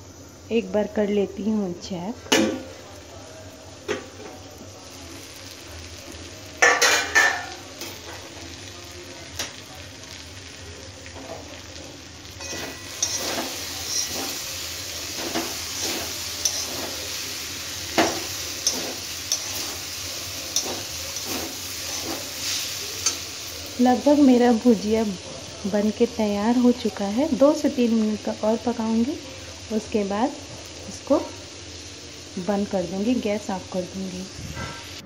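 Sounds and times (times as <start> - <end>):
food sizzling: 0.0 - 35.0
metal spatula scraping a pan: 12.4 - 17.3, 17.9 - 23.3.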